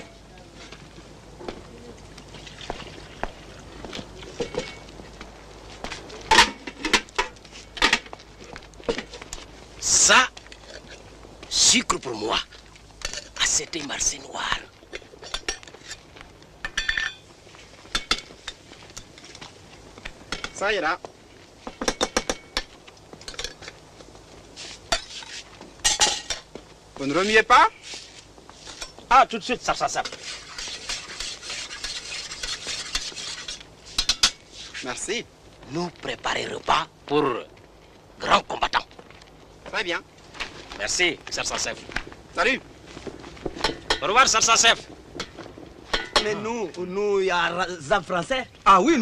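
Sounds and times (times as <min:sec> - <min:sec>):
cups and tableware clinking: 0:04.2 - 0:04.9, 0:16.6 - 0:17.2, 0:25.8 - 0:26.5, 0:45.2 - 0:46.4.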